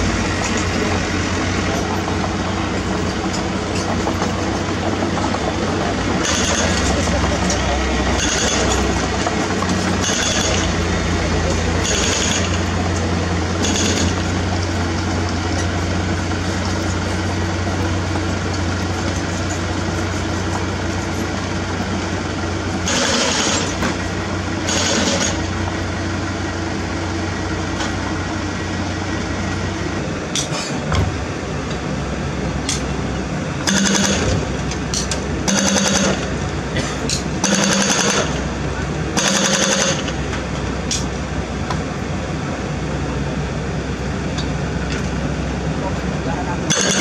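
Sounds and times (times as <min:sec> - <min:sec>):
diesel engine running: 0:00.0 - 0:47.0
hydraulic breaker hammering: 0:06.1 - 0:10.9, 0:24.7 - 0:25.5, 0:33.6 - 0:36.3, 0:37.4 - 0:38.5, 0:39.2 - 0:40.2, 0:46.7 - 0:47.0.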